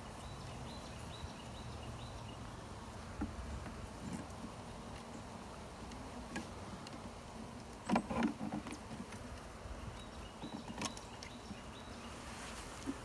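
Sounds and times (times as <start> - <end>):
honey bees humming: 0.0 - 13.0
scraping and rustling: 3.0 - 5.2, 5.8 - 9.5, 10.4 - 13.0.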